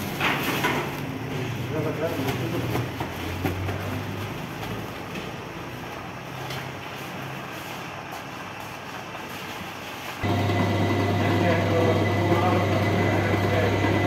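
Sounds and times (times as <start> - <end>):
mixer running hum: 8.9 - 14.0.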